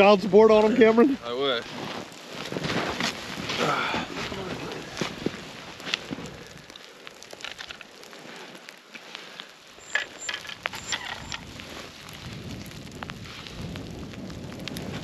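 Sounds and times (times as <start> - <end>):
snow and slush crunching: 0.0 - 15.0
scattered clicks: 9.8 - 11.5.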